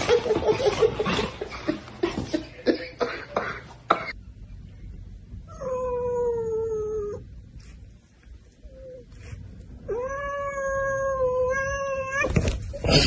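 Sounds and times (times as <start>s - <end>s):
cat yowling: 9.9s - 12.4s.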